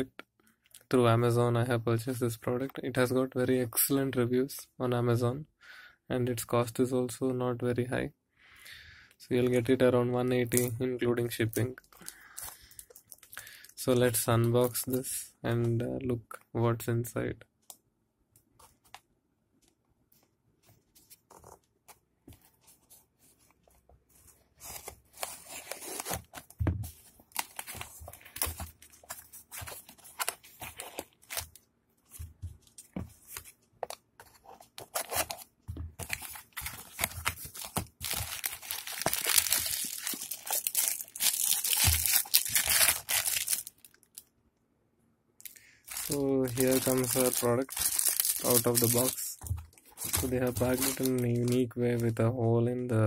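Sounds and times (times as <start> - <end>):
plastic wrap crinkling: 34.4 - 44.2, 45.9 - 52.2.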